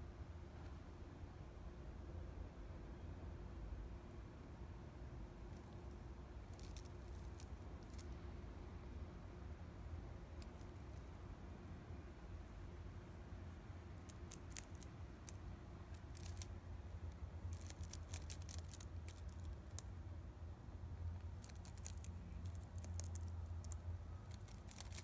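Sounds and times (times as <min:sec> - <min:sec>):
low steady hum: 0:00.0 - 0:25.0
rabbit nibbling hay: 0:05.2 - 0:08.3, 0:12.6 - 0:19.9, 0:21.1 - 0:25.0.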